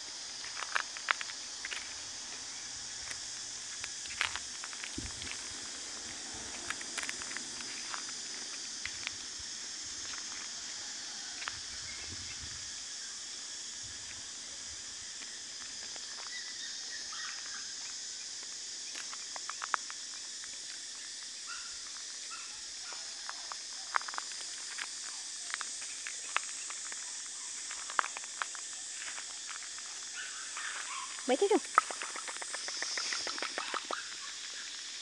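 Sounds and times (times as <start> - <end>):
insect drone: 0.0 - 35.0
footsteps on gravel: 0.2 - 10.5, 23.2 - 34.0.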